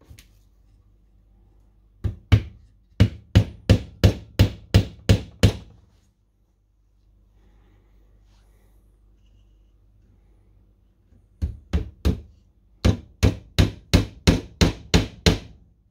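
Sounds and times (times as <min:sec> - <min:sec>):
hammer knocking on wood: 0:02.0 - 0:05.7, 0:11.4 - 0:15.5.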